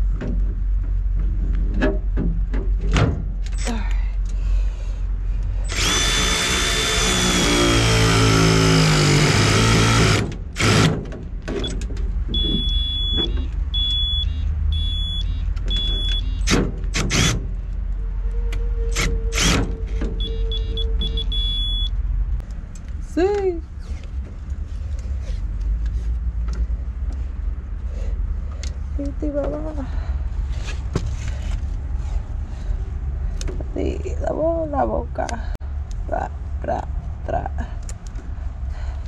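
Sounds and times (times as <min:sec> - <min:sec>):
torque wrench short high beeps: 0:12.4 - 0:16.5, 0:20.2 - 0:21.9.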